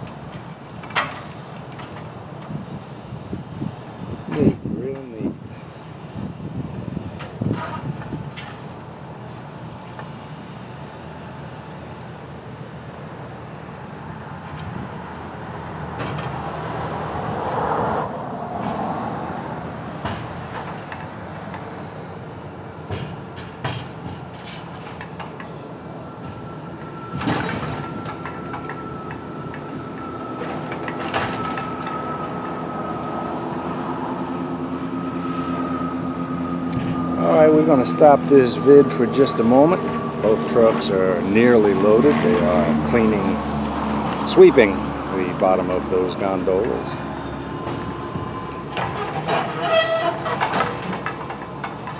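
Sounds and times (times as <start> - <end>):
steady high whine: 0.0 - 51.9
truck engine and hydraulics: 0.0 - 51.9
metal knocks and clanks: 47.6 - 51.9.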